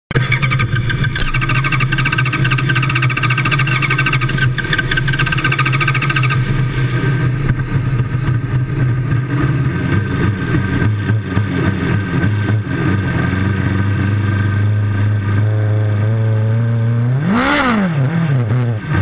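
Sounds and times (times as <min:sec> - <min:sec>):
race car engine idling: 0:00.1 - 0:15.4
rapid higher pulsing: 0:00.1 - 0:15.4.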